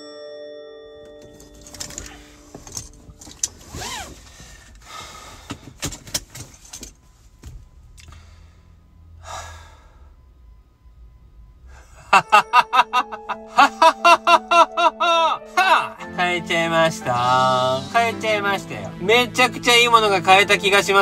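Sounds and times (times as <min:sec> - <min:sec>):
seat belt buckling clicks: 0:01.0 - 0:08.2
rustling: 0:01.1 - 0:07.9
breathy gasp: 0:08.0 - 0:10.2
man laughing loudly: 0:12.0 - 0:16.0.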